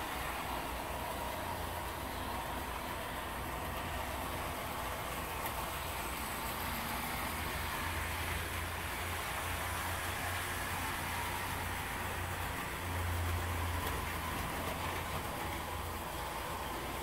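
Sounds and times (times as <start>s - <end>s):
model train motors whirring: 0.0s - 17.0s
wheels on rail: 0.0s - 17.0s.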